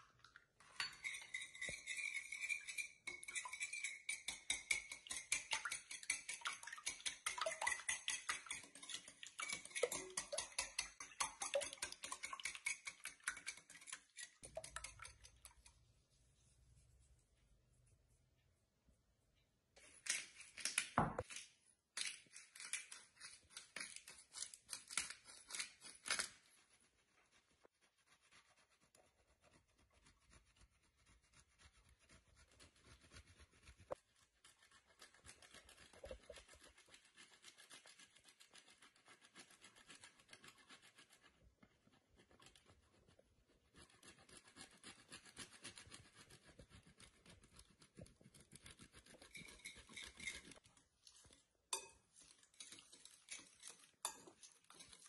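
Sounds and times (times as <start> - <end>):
cheese rasping on metal grater: 43.8 - 50.6.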